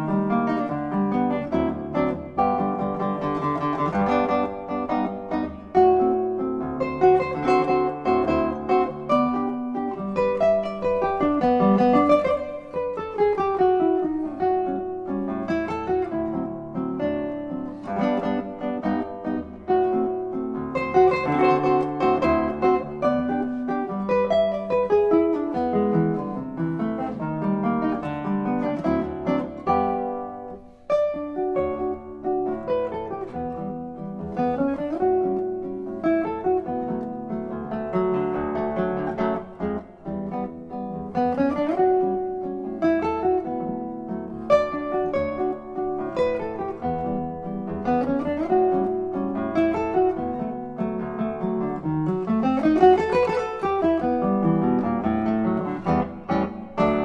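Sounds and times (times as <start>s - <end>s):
fingerpicked classical guitar melody: 0.0s - 57.0s.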